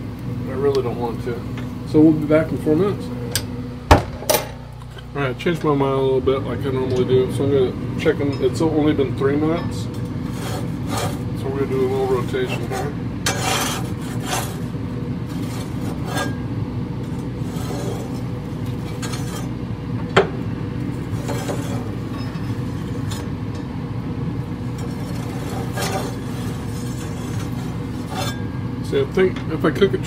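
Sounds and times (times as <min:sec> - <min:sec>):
steady low hum: 0:00.0 - 0:30.0
metal spatula scraping grill grates: 0:10.2 - 0:19.6, 0:20.9 - 0:23.4, 0:24.6 - 0:28.6.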